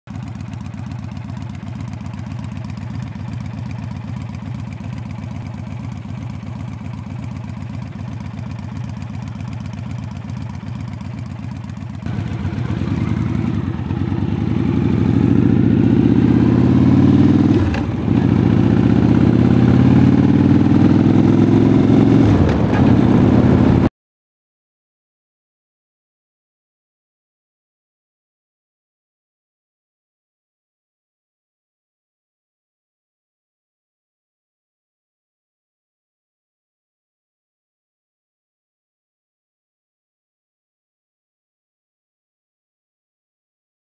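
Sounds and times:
motorcycle engine accelerating: 0.1s - 23.9s.

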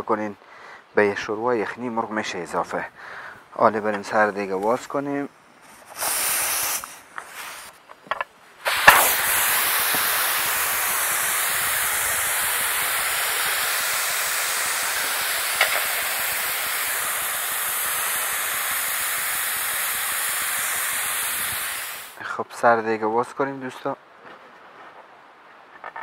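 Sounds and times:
pressure cooker steam hissing: 5.9s - 7.7s, 8.6s - 22.2s.

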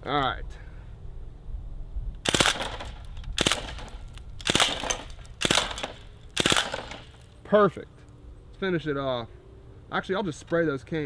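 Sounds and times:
bb gun firing bursts: 2.2s - 7.2s.

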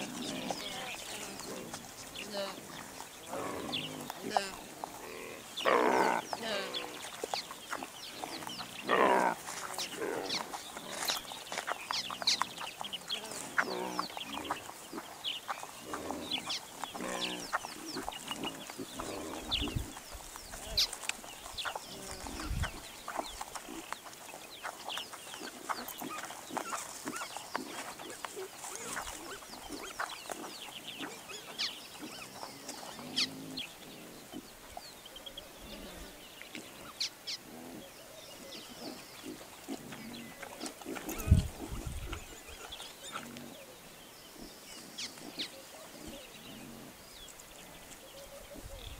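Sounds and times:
birds chirping and calling: 0.0s - 48.9s
piglets grunting and squealing: 15.8s - 19.9s, 25.4s - 34.4s, 35.4s - 43.6s.

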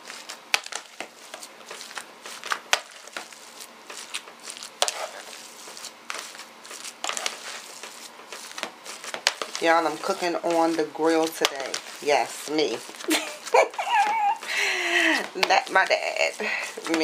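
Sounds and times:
wet squishing of meat: 0.7s - 9.2s.

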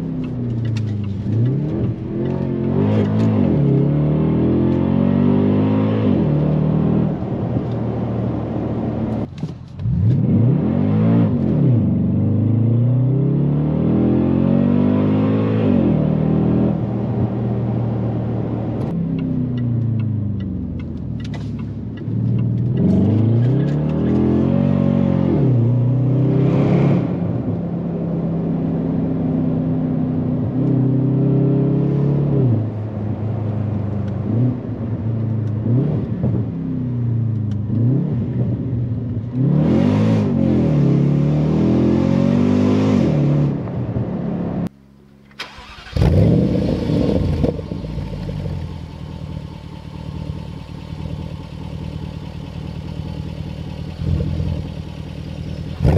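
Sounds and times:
car engine revving: 0.0s - 19.0s, 37.3s - 44.7s, 45.3s - 55.9s
rough engine and road noise: 0.0s - 55.9s.

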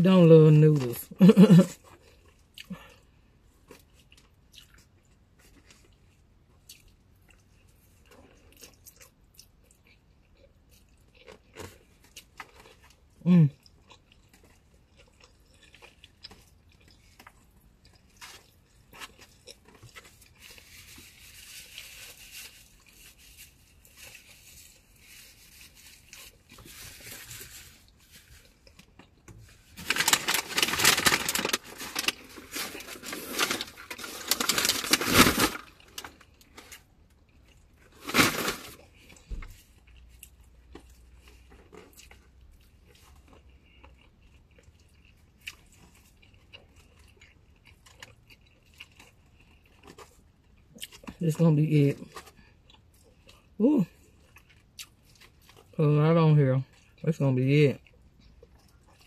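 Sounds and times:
faint chewing: 1.8s - 30.0s, 38.8s - 51.2s, 52.0s - 55.8s, 57.8s - 59.0s.

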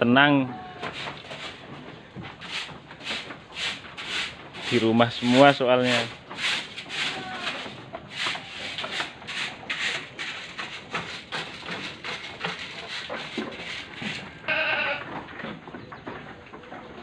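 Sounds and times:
goat bleating: 0.3s - 1.0s, 6.9s - 7.8s, 14.4s - 15.1s
scraping rubbing strokes: 0.8s - 15.0s.

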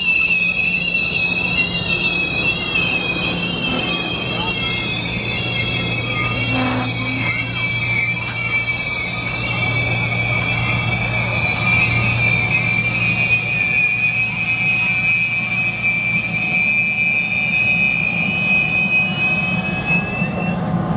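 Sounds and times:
train cars rumbling: 0.0s - 20.9s
wheels squealing on rails: 0.0s - 20.9s.

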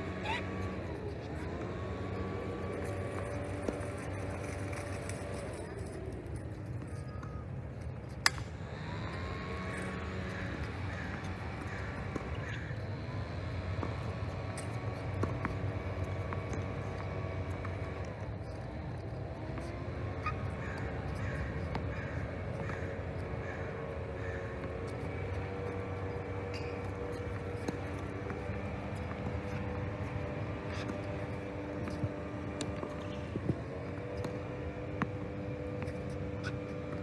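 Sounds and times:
tennis racket hitting ball: 26.2s - 33.2s.

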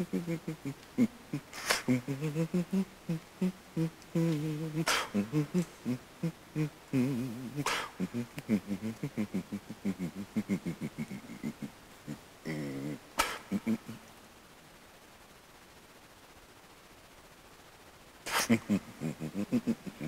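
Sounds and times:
sharp hissing: 0.0s - 14.1s, 18.2s - 20.0s.

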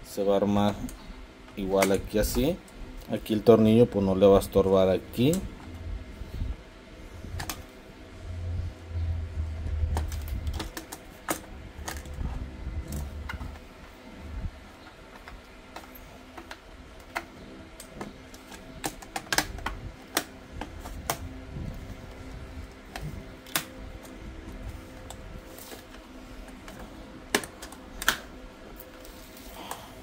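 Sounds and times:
plastic parts clicking and tapping: 7.4s - 7.7s, 9.8s - 14.0s, 14.8s - 29.8s.

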